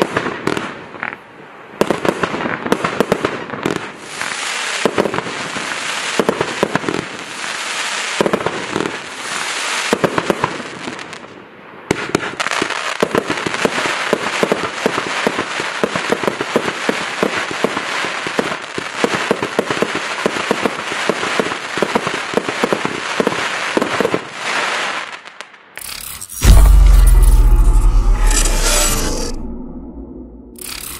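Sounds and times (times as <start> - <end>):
fireworks crackling and popping: 0.0 - 1.2, 1.8 - 27.5, 30.6 - 30.9
fireworks shots bursting: 1.8 - 10.6.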